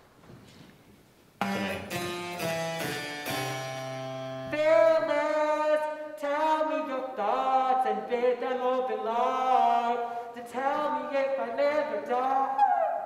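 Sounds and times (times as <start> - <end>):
harpsichord chords: 1.4 - 4.5.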